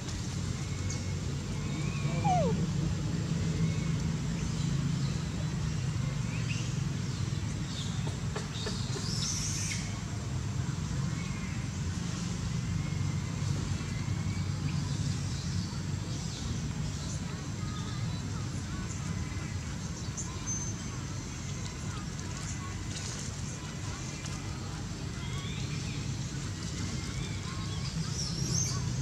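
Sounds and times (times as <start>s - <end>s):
low mechanical hum: 0.0s - 29.0s
faint bird chirps: 0.8s - 2.6s
bright high bird call: 1.7s - 2.6s.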